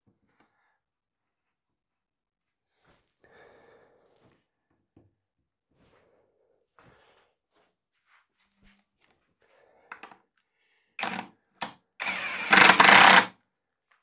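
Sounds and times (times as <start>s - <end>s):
power drill drilling: 11.0s - 11.3s, 12.0s - 13.3s.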